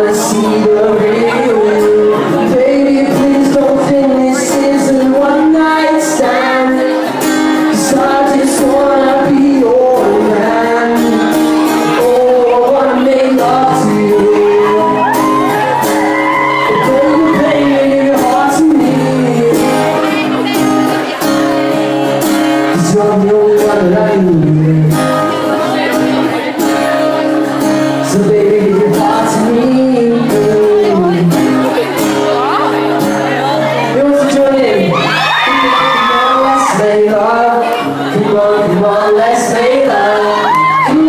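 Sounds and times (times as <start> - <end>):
acoustic guitar strumming: 0.0 - 41.0
man singing: 0.0 - 41.0
audience shouting: 14.6 - 17.9, 34.8 - 37.0, 40.1 - 41.0.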